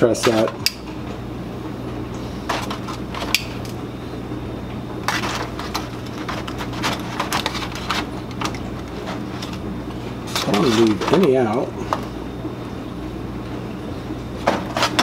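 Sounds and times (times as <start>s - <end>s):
aluminium foil crinkling: 5.0s - 11.3s.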